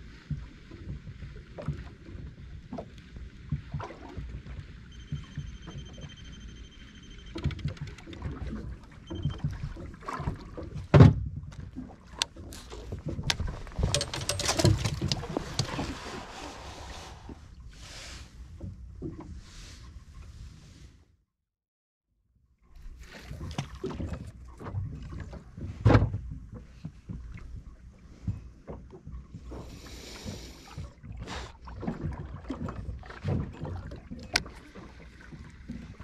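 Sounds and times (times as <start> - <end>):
clatter on a boat: 0.0 - 16.6, 22.8 - 36.0
knocks and clicks of handling: 11.0 - 15.9.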